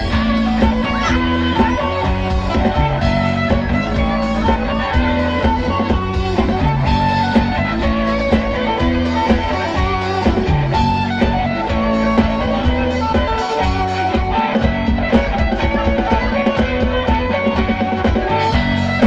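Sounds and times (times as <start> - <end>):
bass guitar: 0.0 - 19.0
drum kit beat: 0.0 - 19.0
electric guitars: 0.0 - 19.0.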